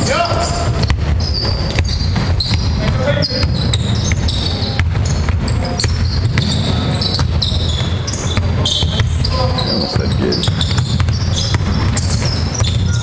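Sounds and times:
shoes squeaking on floor: 0:00.0 - 0:13.0
basketball bouncing on hardwood: 0:00.3 - 0:13.0.

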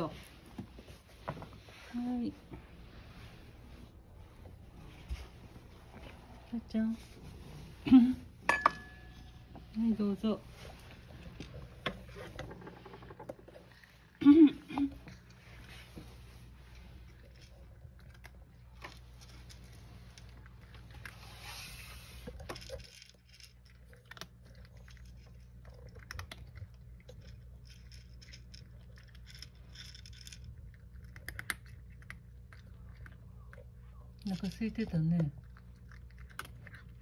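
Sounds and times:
cat crunching kibble: 0:10.5 - 0:14.2, 0:14.8 - 0:37.0.

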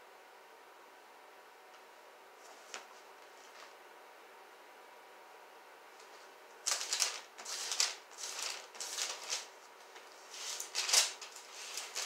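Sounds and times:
pages being flipped: 0:06.0 - 0:12.0.

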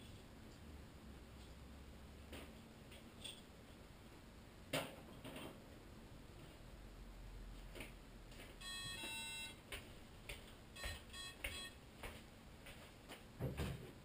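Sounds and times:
electronic beeps: 0:08.6 - 0:09.6, 0:10.8 - 0:11.8.

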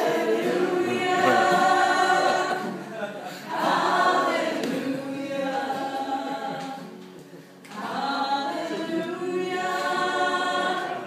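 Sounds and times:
person singing: 0:00.0 - 0:02.7
acoustic guitar: 0:00.0 - 0:11.0.

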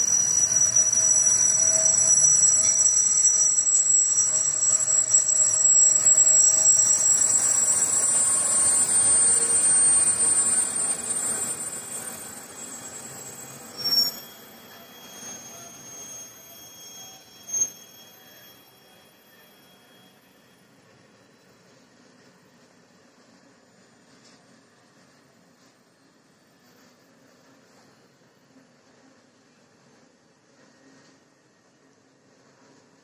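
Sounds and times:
high-pitched wheel squeal: 0:00.0 - 0:21.9.

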